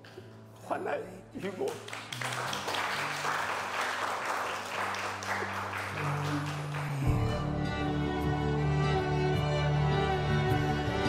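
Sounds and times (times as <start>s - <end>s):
soft music with low notes: 0.0s - 11.0s
crowd applauding: 1.6s - 7.5s.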